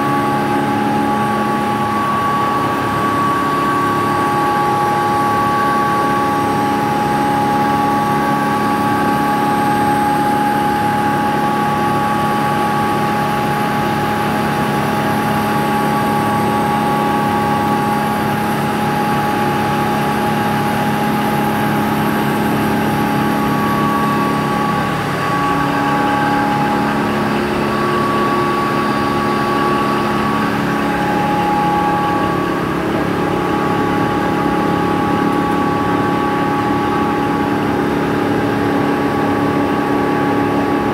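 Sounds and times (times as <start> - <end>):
pulverizer machine hum and whine: 0.0 - 40.9.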